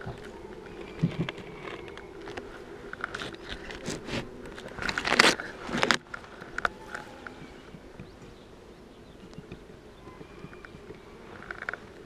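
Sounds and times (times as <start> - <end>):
beehive parts knocking and scraping: 0.0 - 8.4
honeybees humming: 0.0 - 12.0.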